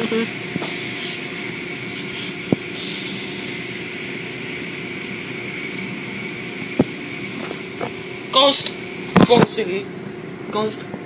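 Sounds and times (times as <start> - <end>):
car wash brushes and motors humming: 0.0 - 11.0.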